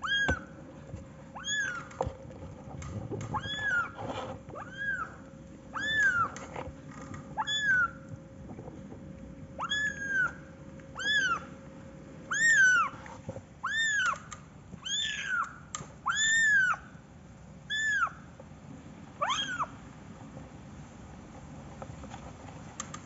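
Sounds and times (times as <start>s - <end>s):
kitten mewing: 3.1s - 5.2s, 5.8s - 6.4s, 9.6s - 10.4s.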